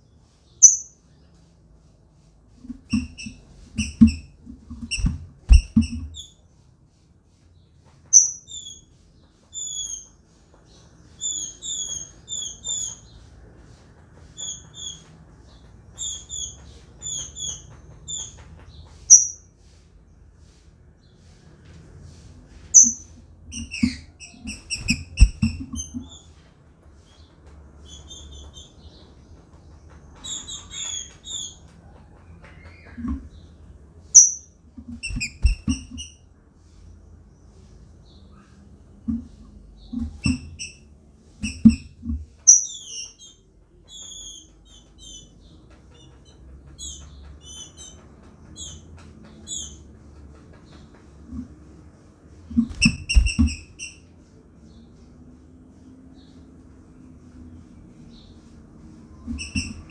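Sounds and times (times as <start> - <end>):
bird chirping: 0.0 - 1.4, 8.0 - 19.5, 22.7 - 26.4, 27.0 - 36.2, 37.4 - 51.5, 54.7 - 59.9.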